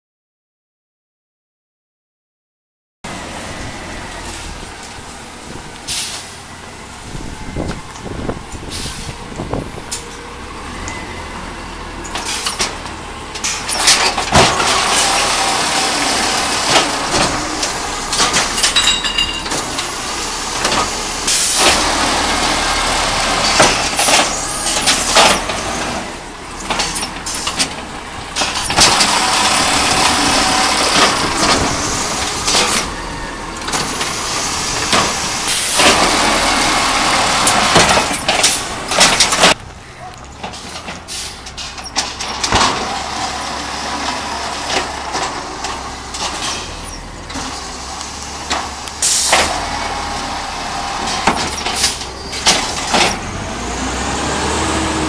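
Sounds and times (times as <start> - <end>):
garbage truck engine running: 3.1 - 55.0
hydraulic arm lifting: 7.0 - 39.6
cart knocking and clattering: 12.0 - 21.0, 22.8 - 33.0, 37.1 - 43.4.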